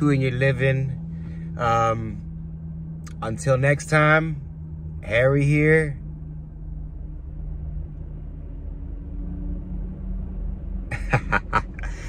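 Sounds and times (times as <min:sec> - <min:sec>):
car idling hum: 0:00.0 - 0:12.0.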